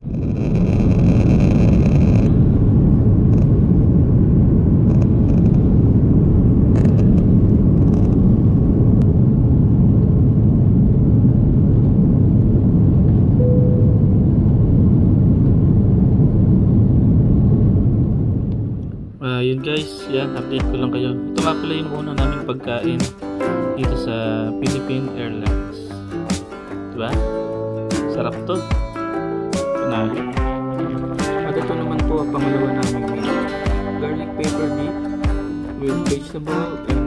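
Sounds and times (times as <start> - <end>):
high engine whine: 0.0 - 19.2
jet engine rumble in cabin: 0.0 - 19.2.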